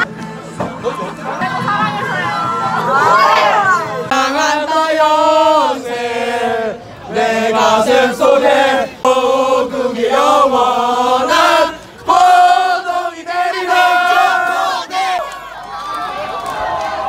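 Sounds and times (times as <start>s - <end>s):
crowd singing in unison: 2.9s - 15.5s.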